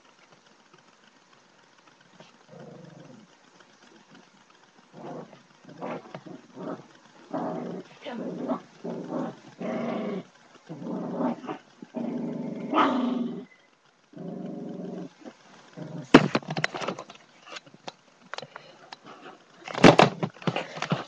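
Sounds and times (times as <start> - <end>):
small dog growling: 2.1 - 4.3, 4.9 - 17.1.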